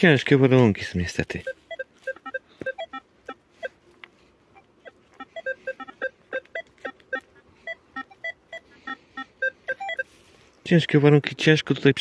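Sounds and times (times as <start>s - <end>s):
metal detector beeping: 1.3s - 3.8s, 4.5s - 10.3s.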